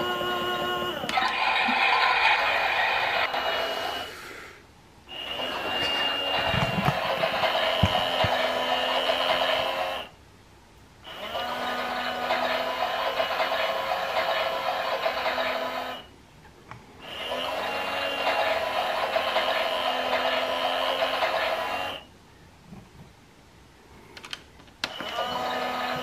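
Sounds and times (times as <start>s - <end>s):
toy washing machine motor whining: 0.0s - 4.3s, 5.1s - 10.2s, 11.1s - 16.1s, 17.0s - 22.1s, 24.8s - 26.0s.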